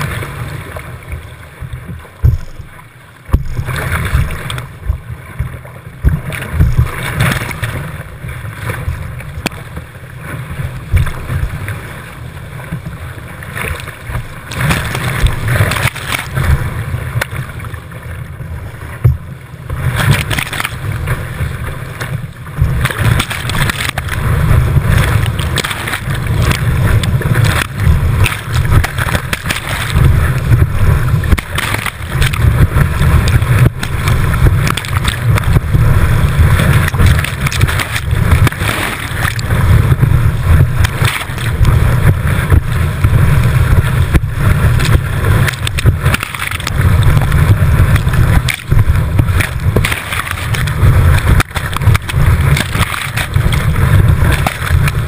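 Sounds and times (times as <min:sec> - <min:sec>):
whitewater rushing and splashing: 0:00.0 - 0:55.0
heavy low rumble: 0:20.9 - 0:55.0.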